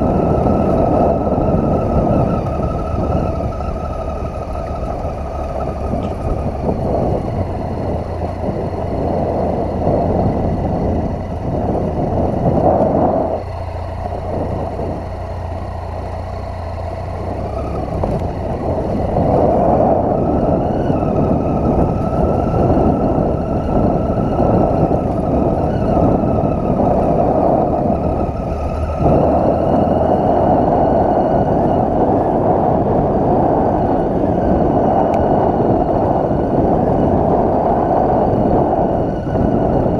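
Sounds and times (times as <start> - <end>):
motorcycle engine on gravel track: 0.0 - 39.9
wind and road noise: 0.0 - 39.9.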